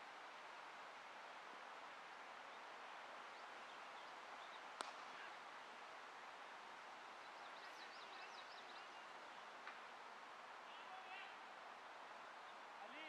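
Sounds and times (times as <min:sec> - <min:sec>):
quiet outdoor ambience: 0:00.0 - 0:13.0
cricket bat striking ball: 0:04.8 - 0:05.1
faint bird chirps: 0:07.0 - 0:09.5.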